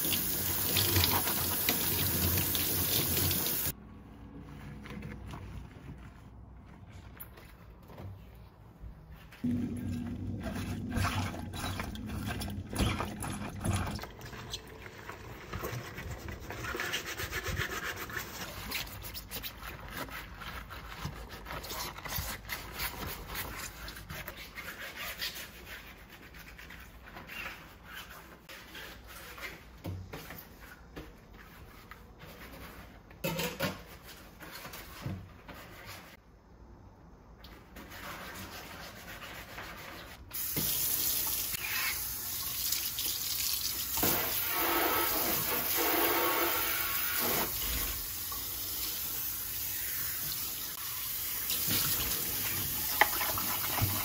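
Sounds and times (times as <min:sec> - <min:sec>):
brush scrubbing a surface: 0:00.0 - 0:03.8, 0:09.0 - 0:29.8, 0:37.7 - 0:40.6, 0:44.0 - 0:48.1, 0:51.6 - 0:54.0.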